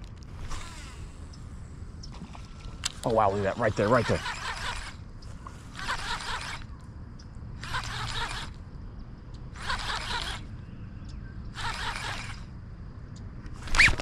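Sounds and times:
fishing reel cranking: 0.3 - 6.8, 7.6 - 8.6, 9.5 - 10.5, 11.5 - 12.6, 13.6 - 14.0.

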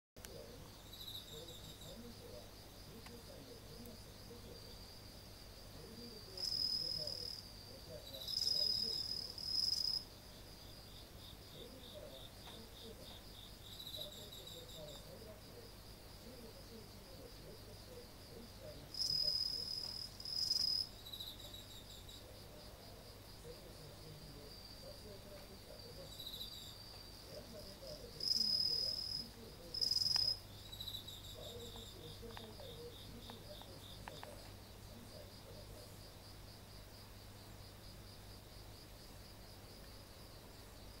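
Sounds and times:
crickets chorus: 0.2 - 41.0
close cricket short trills: 5.8 - 36.1.

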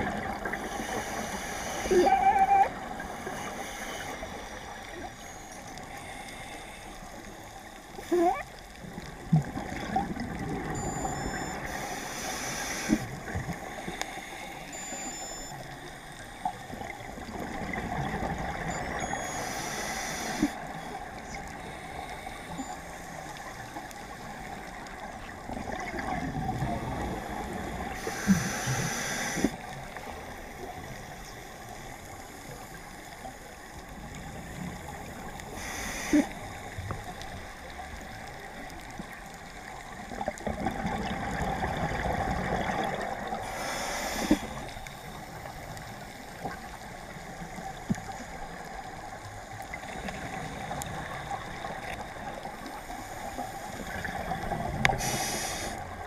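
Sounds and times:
underwater hiss: 0.3 - 4.9, 11.6 - 14.7, 19.4 - 20.7, 27.9 - 29.7, 34.4 - 37.0, 41.6 - 46.6, 51.3 - 56.0
exhaled bubbles burbling: 9.1 - 11.5, 40.1 - 43.4.

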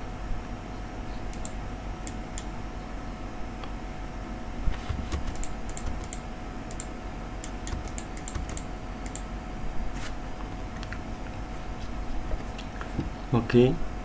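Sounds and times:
faint steady hum: 0.0 - 14.0
keyboard key clicks: 5.1 - 9.2.

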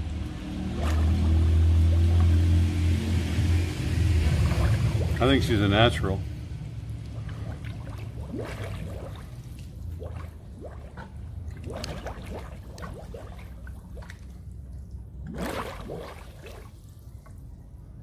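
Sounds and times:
water gurgling and splashing: 0.0 - 17.6
water gush: 0.5 - 14.5.

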